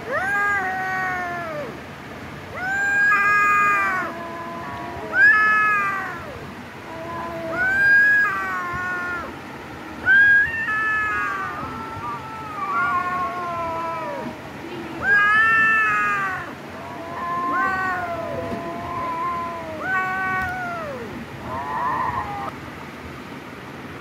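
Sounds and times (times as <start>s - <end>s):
kittens mewing: 2.6s - 9.3s, 10.1s - 14.4s, 15.0s - 22.5s.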